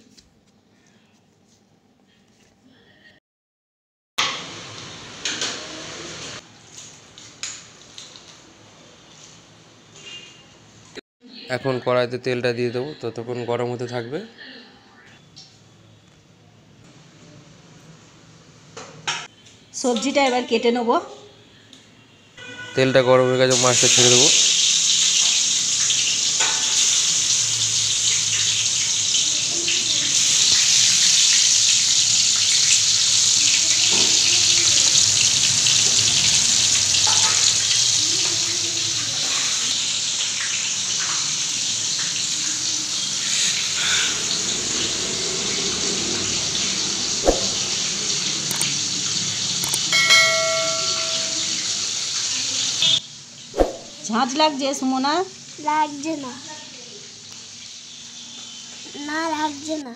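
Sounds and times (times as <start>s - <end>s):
fish sizzling in hot oil: 4.2s - 10.4s, 23.5s - 59.8s.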